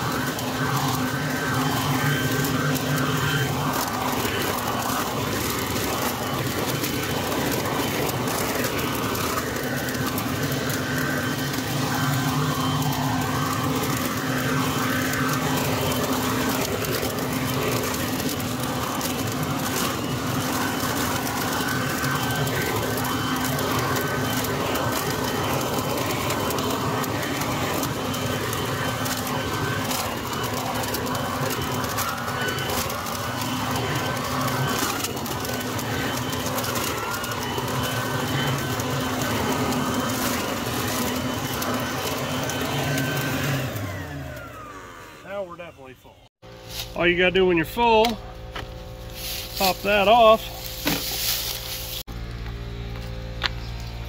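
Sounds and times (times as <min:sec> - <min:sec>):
leaves rustling and crackling: 0:00.0 - 0:44.8, 0:46.5 - 0:47.2, 0:48.6 - 0:52.9
leaf vacuum motor hum and whine: 0:00.0 - 0:54.0.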